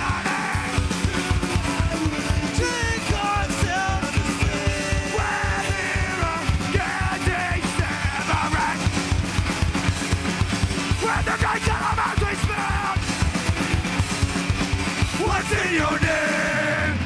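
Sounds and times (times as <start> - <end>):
shouted vocals: 0.0 - 8.9, 10.9 - 13.0, 15.2 - 17.0
bass: 0.0 - 17.0
distorted electric guitars: 0.0 - 17.0
fast driving drums: 0.0 - 17.0.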